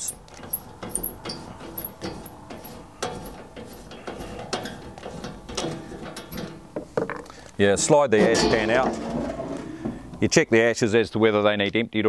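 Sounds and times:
knobs unscrewing clicks and scrapes: 0:00.0 - 0:06.6.

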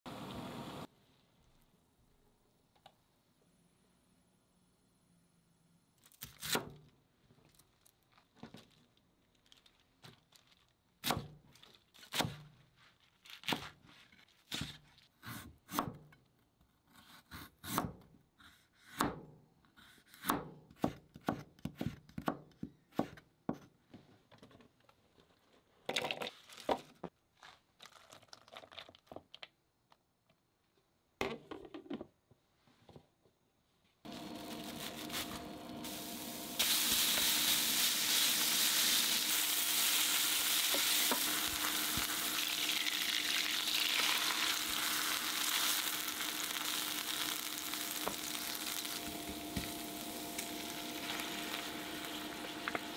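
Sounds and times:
knife chopping on cutting board: 0:20.1 - 0:23.6.

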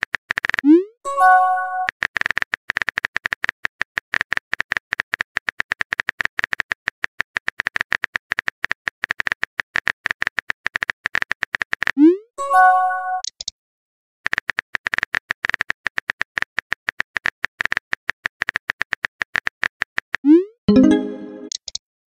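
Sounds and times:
multi-tone chime: 0:20.7 - 0:21.5.

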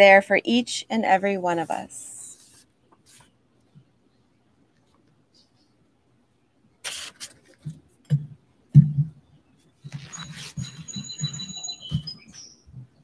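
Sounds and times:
paper rustling: 0:02.4 - 0:03.3, 0:09.9 - 0:11.0
body shifting on yoga mat: 0:07.3 - 0:12.4
thin high whistled notes: 0:10.0 - 0:12.5.

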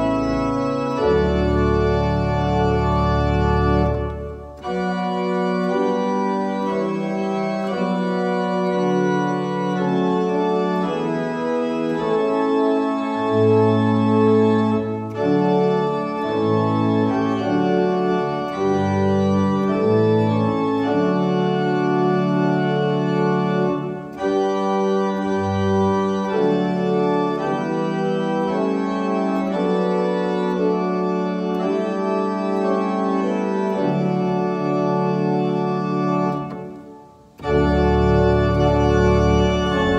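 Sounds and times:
organ playing slow chords: 0:00.0 - 0:39.9.

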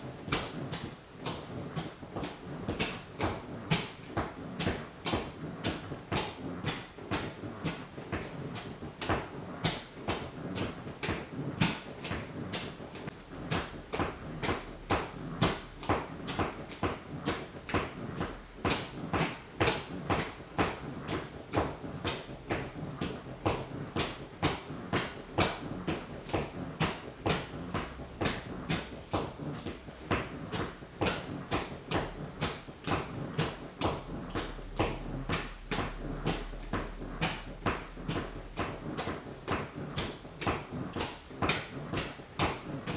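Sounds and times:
sneaker tapping on wooden floor: 0:00.3 - 0:42.9.

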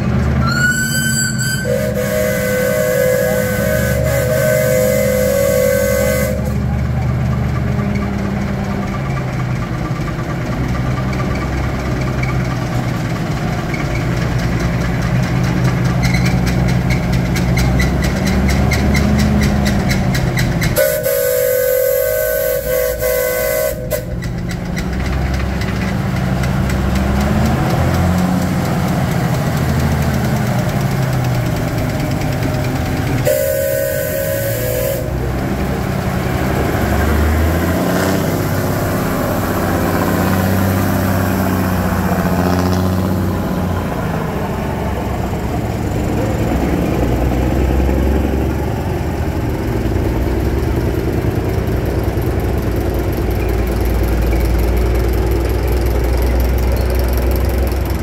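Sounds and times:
heavy engine running: 0:00.0 - 0:58.0
steam whistle blast: 0:00.4 - 0:06.8, 0:20.8 - 0:24.3, 0:33.2 - 0:35.3.

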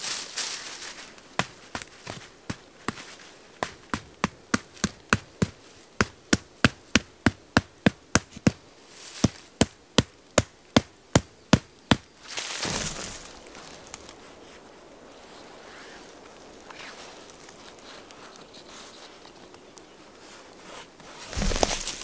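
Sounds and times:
tarp fabric rustling: 0:00.0 - 0:03.4, 0:12.2 - 0:19.4, 0:20.0 - 0:22.0
peg hammered into ground: 0:09.2 - 0:13.4.

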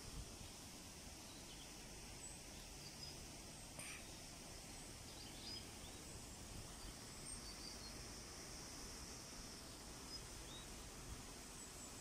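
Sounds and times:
bird chirps: 0:05.1 - 0:06.1, 0:06.8 - 0:08.0, 0:10.1 - 0:10.8.

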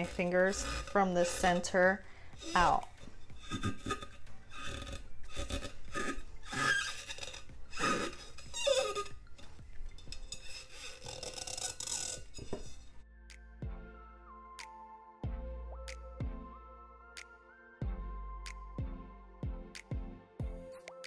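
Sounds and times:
fingers squeaking on vinyl: 0:00.0 - 0:01.8, 0:02.4 - 0:13.0.

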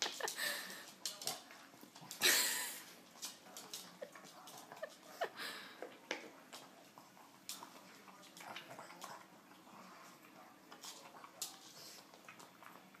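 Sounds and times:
dog crunching kibble: 0:05.9 - 0:13.0.

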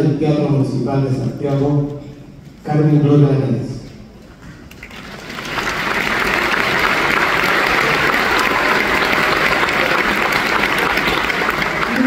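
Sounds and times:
audience applauding: 0:04.7 - 0:12.0.

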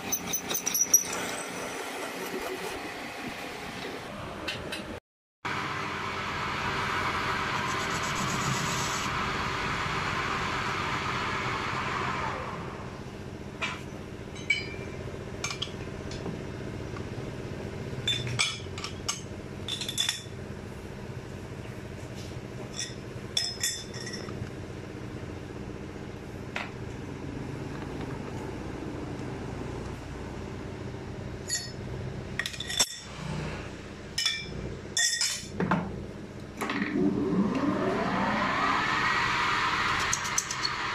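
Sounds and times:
machine hum: 0:05.5 - 0:13.5, 0:36.0 - 0:40.9.

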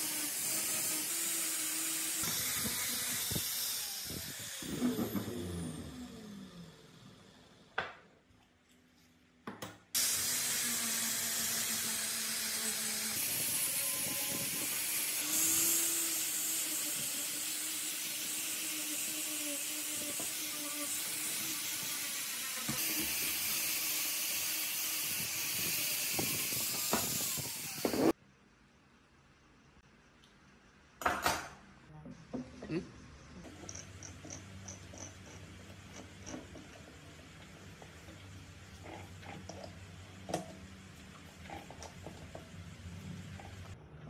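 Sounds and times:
angle grinder grinding metal: 0:00.0 - 0:05.8, 0:10.0 - 0:28.1.

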